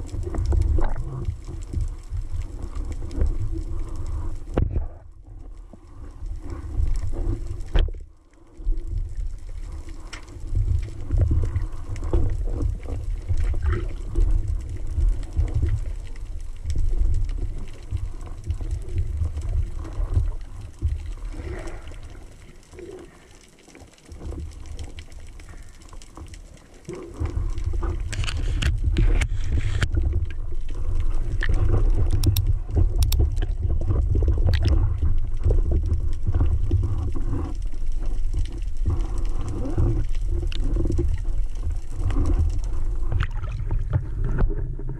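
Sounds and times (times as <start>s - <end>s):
underwater clicks and knocks: 0.0s - 3.6s, 4.4s - 5.5s, 6.7s - 8.0s, 26.2s - 44.9s
muffled underwater rumble: 0.0s - 44.9s.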